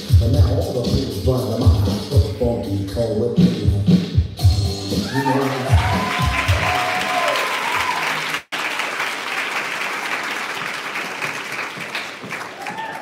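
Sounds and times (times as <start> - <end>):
dance music: 3.4 - 7.3
audience applauding: 5.1 - 13.0.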